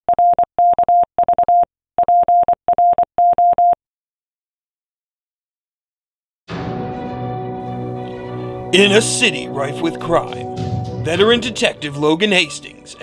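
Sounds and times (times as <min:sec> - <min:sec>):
morse code beeping: 0:00.1 - 0:03.8.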